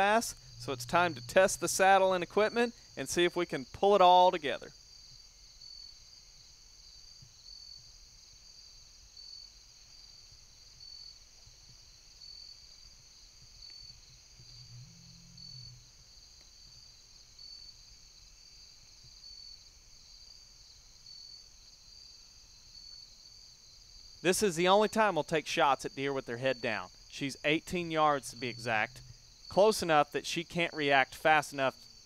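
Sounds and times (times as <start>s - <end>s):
brief low hum: 0.0s - 2.4s
pulsing insect note: 0.0s - 2.6s, 27.4s - 29.2s
insect chorus trilling: 0.0s - 7.9s, 8.5s - 32.0s.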